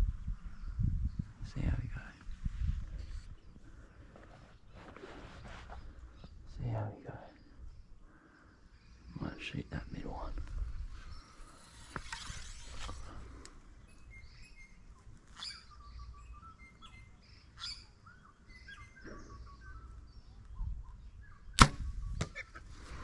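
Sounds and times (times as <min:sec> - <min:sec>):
birds chirping faintly: 0:00.3 - 0:23.0
bow string release crack: 0:11.4 - 0:13.6, 0:21.6 - 0:22.4
arrow knock: 0:21.6 - 0:22.4.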